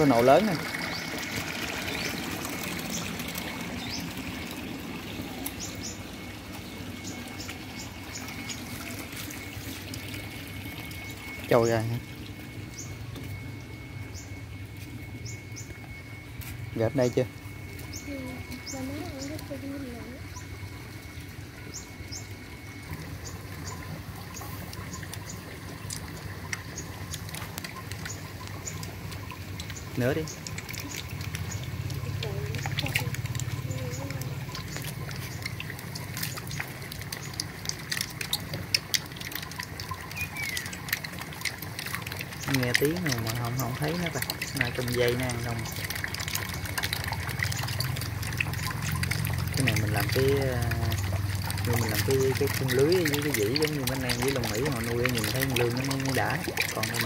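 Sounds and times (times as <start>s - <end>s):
low hum: 0.0s - 56.9s
water running and trickling: 0.0s - 57.0s
eels snapping with clicks and pops: 24.7s - 57.0s
high bird chirps: 40.1s - 40.8s.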